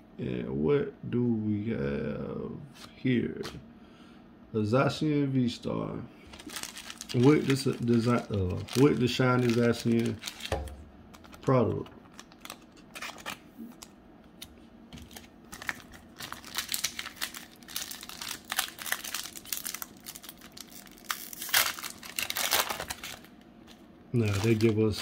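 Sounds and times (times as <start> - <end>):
foil wrapper crinkling and tearing: 6.3 - 13.9, 15.0 - 25.0.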